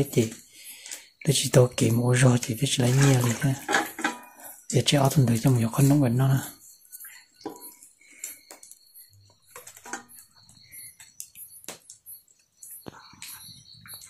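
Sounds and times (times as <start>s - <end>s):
wet handling sounds: 2.8s - 4.4s.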